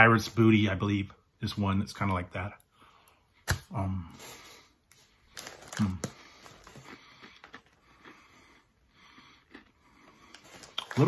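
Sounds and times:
crunching and chewing cheese puff: 0:05.3 - 0:11.0.

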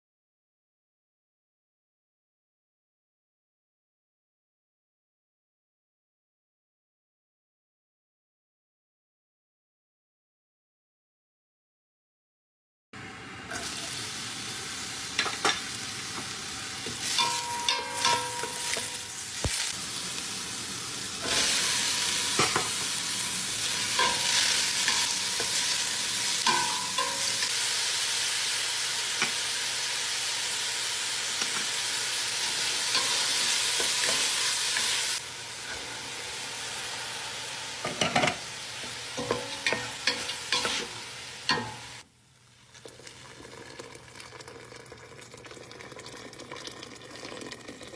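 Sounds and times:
onion and meat sizzling in a pot: 0:13.0 - 0:44.8
spoon scraping and knocking a pot: 0:16.9 - 0:19.0, 0:22.3 - 0:22.8, 0:26.4 - 0:27.5, 0:37.8 - 0:38.4, 0:39.2 - 0:41.8.

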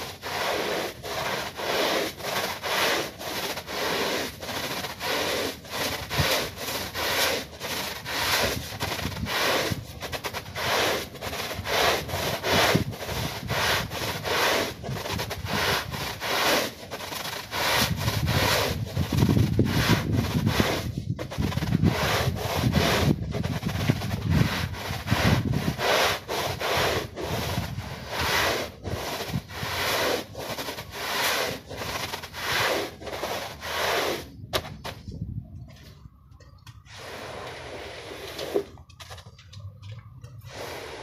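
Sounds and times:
push broom scrubbing a wet rug: 0:00.0 - 0:35.1, 0:36.9 - 0:38.8, 0:40.3 - 0:41.0.

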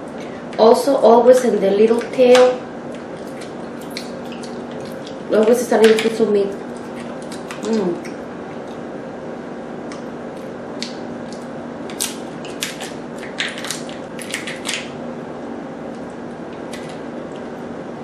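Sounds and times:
steady low hum: 0:00.0 - 0:18.0
lobster shell cracking: 0:09.9 - 0:14.9.

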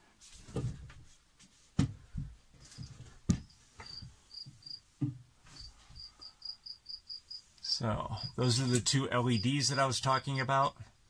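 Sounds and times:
cricket chirping: 0:03.4 - 0:04.8, 0:05.6 - 0:10.5.

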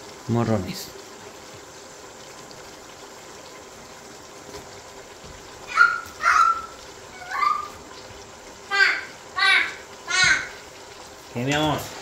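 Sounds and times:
onions sizzling in oil: 0:00.0 - 0:12.0
child shrieking: 0:05.6 - 0:07.8, 0:08.7 - 0:10.6.

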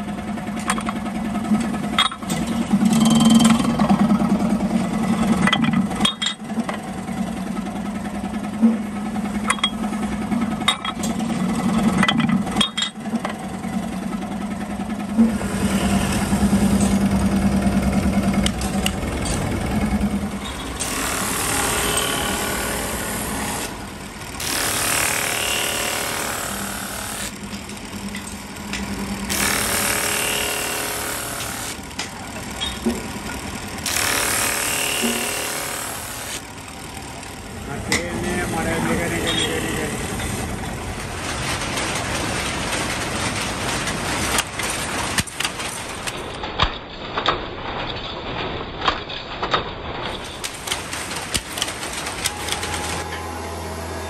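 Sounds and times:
electric motor humming: 0:15.3 - 0:27.9, 0:28.5 - 0:32.0, 0:33.7 - 0:37.4, 0:52.3 - 0:54.0
drum sander rasping on wood: 0:20.7 - 0:27.4, 0:29.3 - 0:31.8, 0:33.8 - 0:36.4.

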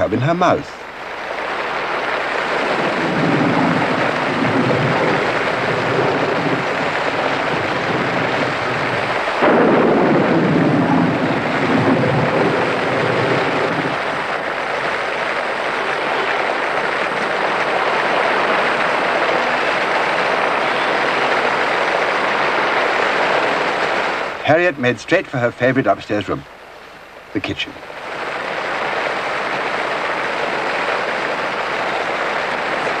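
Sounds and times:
heavy rain pouring: 0:00.0 - 0:33.0
low thunder rumbling: 0:00.9 - 0:24.4
loud thunder crack: 0:01.6 - 0:24.4.

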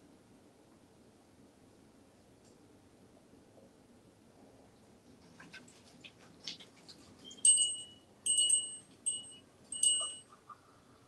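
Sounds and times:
small metal bell ringing: 0:07.4 - 0:10.3.

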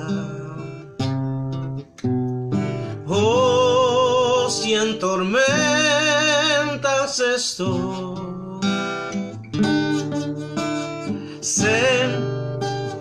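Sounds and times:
man singing with vibrato: 0:00.0 - 0:01.0, 0:02.9 - 0:09.3, 0:10.6 - 0:13.0
strummed acoustic guitar: 0:00.0 - 0:13.0.

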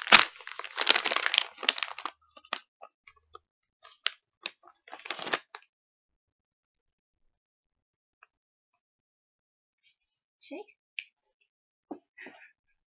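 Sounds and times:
crinkling and crackling: 0:00.0 - 0:05.6.

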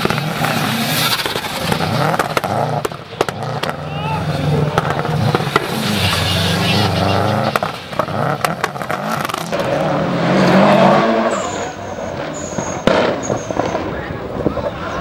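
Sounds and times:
race car engine revving: 0:00.0 - 0:14.4
tyre squeal: 0:00.5 - 0:02.1, 0:05.6 - 0:07.6, 0:10.7 - 0:14.1.

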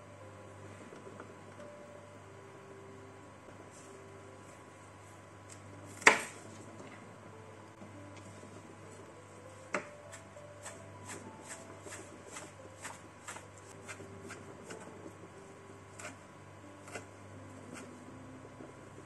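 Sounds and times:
knife chopping on plastic board: 0:06.0 - 0:06.4.

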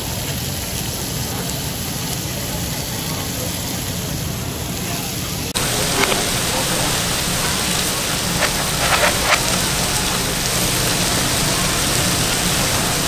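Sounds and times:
reversed meat sizzling: 0:05.6 - 0:13.0.

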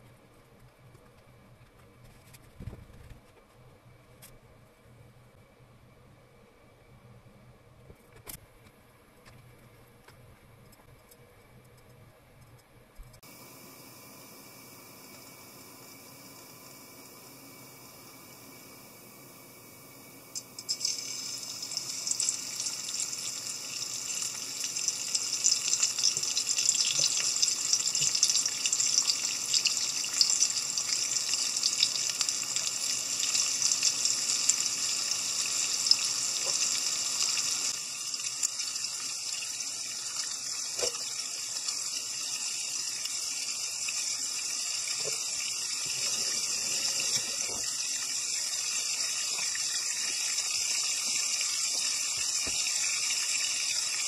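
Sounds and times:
fish sizzling in oil: 0:13.2 - 0:54.0.

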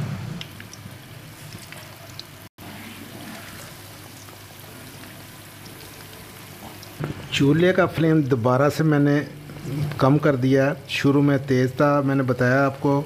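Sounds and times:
oil popping and crackling: 0:00.0 - 0:02.6, 0:03.2 - 0:07.5
food sizzling in hot oil: 0:00.0 - 0:07.1.

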